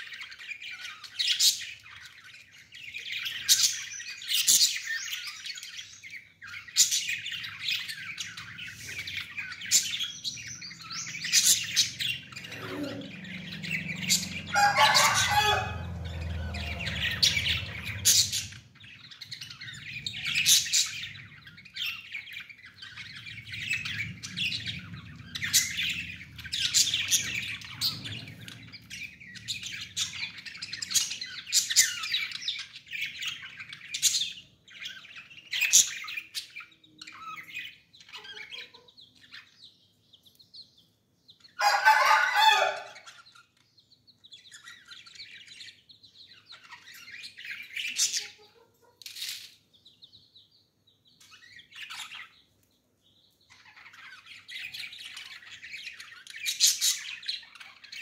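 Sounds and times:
budgerigars chirping: 0:00.0 - 0:58.0
harsh bird calling bursts: 0:11.5 - 0:18.8, 0:41.6 - 0:43.1.

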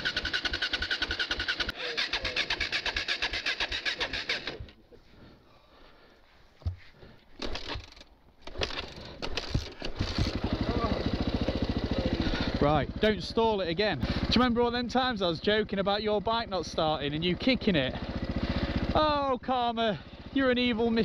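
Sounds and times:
dirt bike engine running: 0:00.0 - 0:04.6, 0:07.4 - 0:21.0
engine restart bursts: 0:00.0 - 0:04.7, 0:07.4 - 0:12.7.

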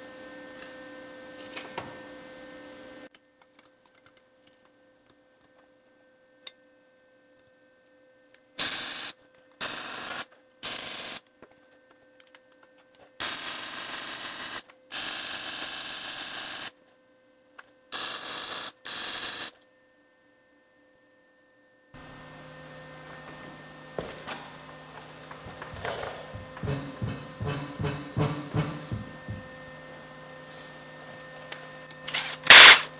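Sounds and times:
welding arc bursts: 0:13.2 - 0:16.7, 0:17.9 - 0:19.6, 0:32.1 - 0:32.9
faint hum: 0:19.9 - 0:32.9.

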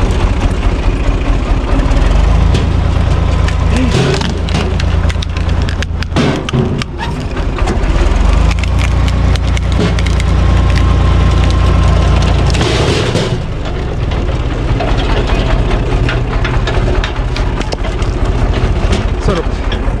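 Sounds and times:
log splitter boring into log: 0:00.0 - 0:20.0
tractor engine drone: 0:00.0 - 0:20.0
wood cracking and splintering: 0:00.0 - 0:20.0.

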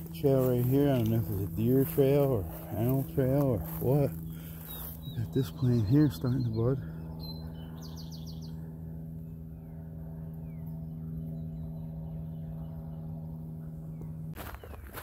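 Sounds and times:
steady low hum: 0:00.0 - 0:15.0
bird trilling: 0:03.6 - 0:14.9.

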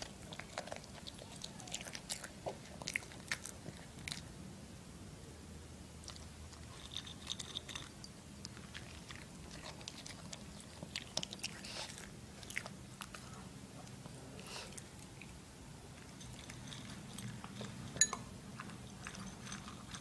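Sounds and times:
dog crunching food: 0:00.0 - 0:04.3, 0:06.0 - 0:13.2, 0:14.7 - 0:20.0.

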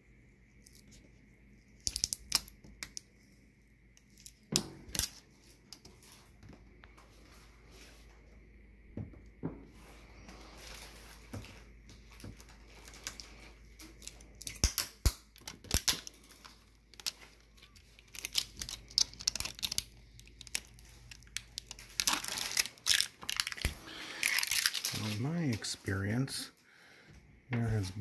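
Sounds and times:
plastic film peeling and crackling: 0:00.5 - 0:03.4, 0:04.0 - 0:07.4, 0:10.3 - 0:25.9
plastic film crinkling: 0:10.2 - 0:26.0.

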